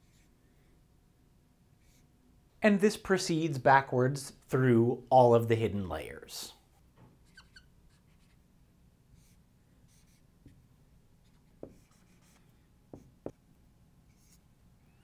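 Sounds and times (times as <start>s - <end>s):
marker squeaking on whiteboard: 7.2s - 8.4s, 9.2s - 10.3s, 11.2s - 13.4s, 14.1s - 15.0s.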